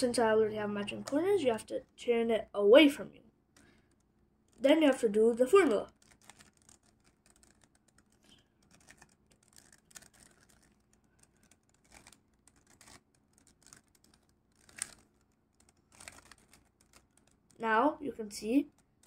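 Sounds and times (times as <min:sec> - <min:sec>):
puzzle cube clicking and rattling: 0:03.6 - 0:17.6, 0:18.6 - 0:19.0.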